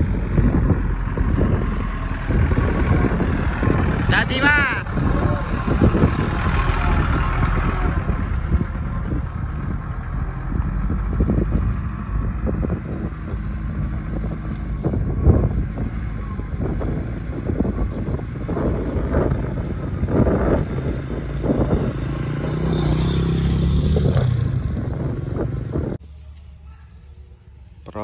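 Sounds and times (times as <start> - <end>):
diesel truck engine under load: 0.0 - 26.5.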